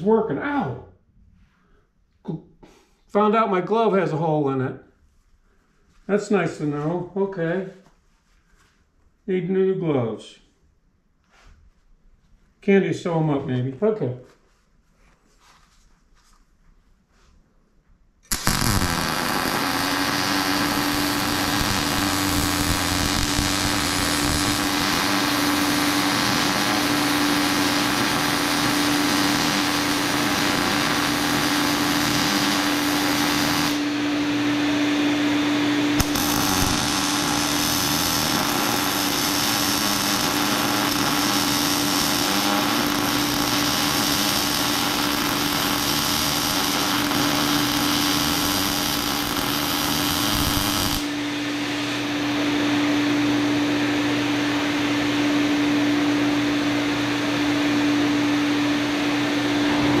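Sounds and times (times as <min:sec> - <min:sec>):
welding arc crackling: 0:18.2 - 0:33.9, 0:36.0 - 0:51.8
fan humming: 0:18.3 - 1:00.0.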